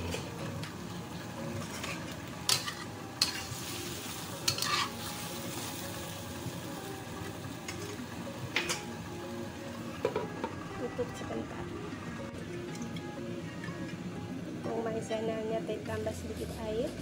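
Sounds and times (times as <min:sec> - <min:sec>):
chicken feet sizzling in a wok: 0:00.0 - 0:11.0
metal spatula scraping a wok: 0:04.4 - 0:05.2.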